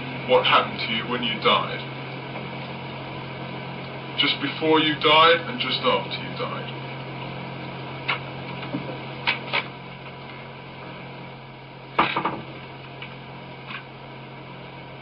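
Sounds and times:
tape recording hum and hiss: 0.0s - 15.0s
scattered clicks and knocks: 8.0s - 10.4s, 12.0s - 13.9s
clatter of knocks: 12.0s - 12.5s.

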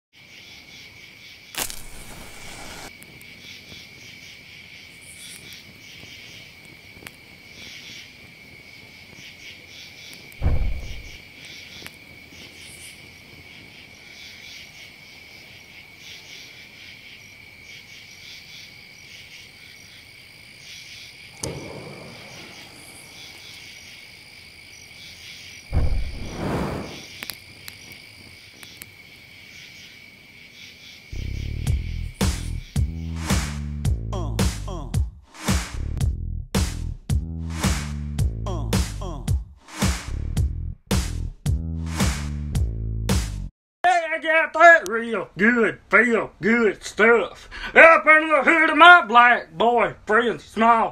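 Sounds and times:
crickets chirping: 0.2s - 33.3s
low rushing noise: 1.8s - 2.9s, 10.4s - 11.2s, 25.7s - 27.0s
low thump: 10.4s - 11.2s, 25.7s - 27.0s.

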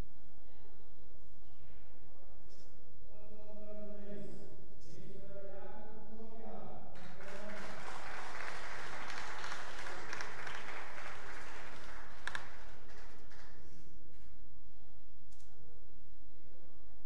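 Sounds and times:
audience applauding: 7.0s - 13.6s.

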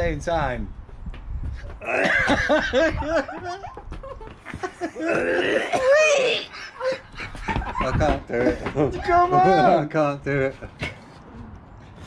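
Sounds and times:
coughing: 1.8s - 2.7s, 4.9s - 7.0s
men laughing: 1.8s - 10.8s.

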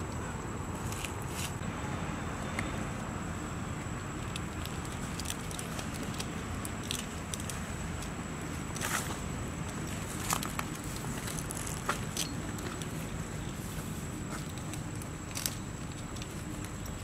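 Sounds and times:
small clicks and crackles: 4.1s - 17.0s.

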